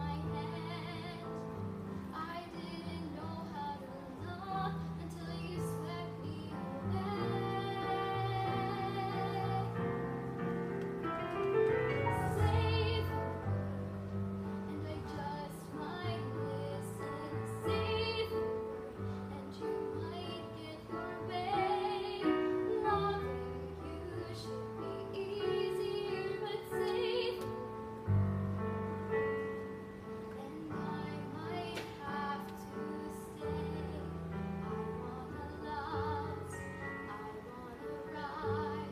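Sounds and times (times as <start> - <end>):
girl singing with vibrato: 2.1 - 9.9, 12.3 - 13.9, 14.7 - 27.8, 30.4 - 38.9.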